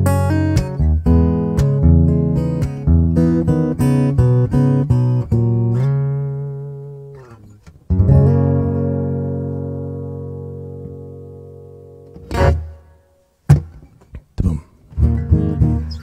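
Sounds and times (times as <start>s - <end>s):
acoustic guitar strumming chords: 0.0s - 14.0s, 14.9s - 16.0s.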